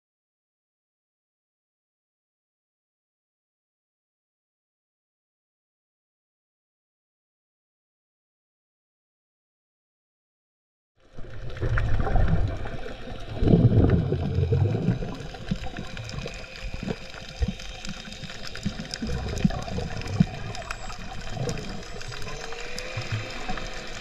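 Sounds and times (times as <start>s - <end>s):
underwater sloshing and bubbling: 11.0s - 24.0s
low rumble: 11.2s - 24.0s.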